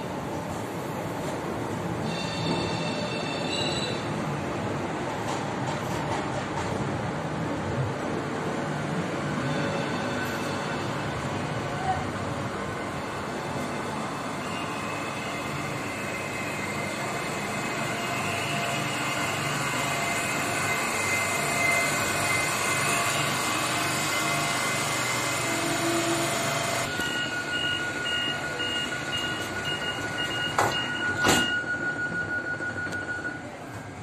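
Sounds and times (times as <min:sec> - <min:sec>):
train doors shutting: 0:00.0 - 0:34.0
train equipment hum with whine: 0:00.0 - 0:34.0
door-closing warning beeps: 0:26.9 - 0:33.8.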